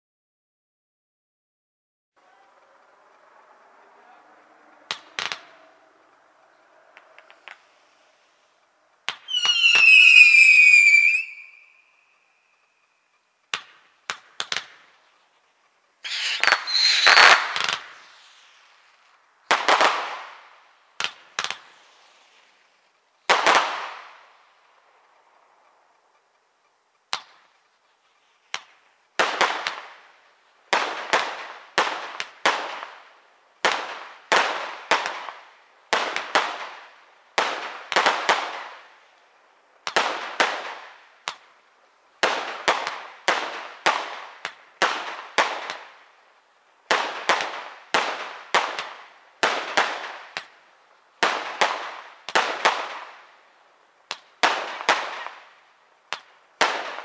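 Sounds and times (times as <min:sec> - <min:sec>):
fireworks bangs with echo: 0:02.5 - 0:07.9, 0:09.0 - 0:11.7, 0:13.5 - 0:15.0, 0:16.0 - 0:22.4, 0:23.2 - 0:24.3, 0:28.5 - 0:30.1, 0:30.7 - 0:39.0, 0:39.8 - 0:41.6, 0:42.2 - 0:46.2, 0:46.8 - 0:50.6, 0:51.2 - 0:53.3, 0:54.1 - 0:57.0.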